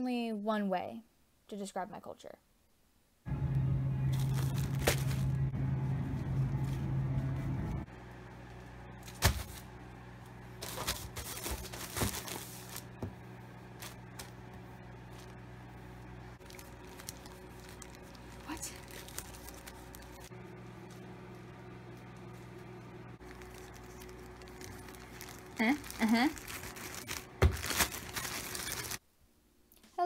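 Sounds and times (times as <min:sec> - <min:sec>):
low store hum: 0:03.1 - 0:30.0
plastic bag crinkling: 0:04.1 - 0:05.4, 0:10.6 - 0:13.0, 0:16.4 - 0:21.0, 0:23.2 - 0:29.0.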